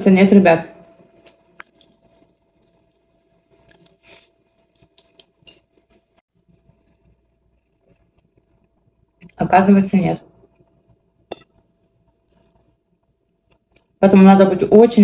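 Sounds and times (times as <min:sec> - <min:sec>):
faint steady hum: 0:00.0 - 0:15.0
soft chewing: 0:01.1 - 0:09.4, 0:10.4 - 0:14.0.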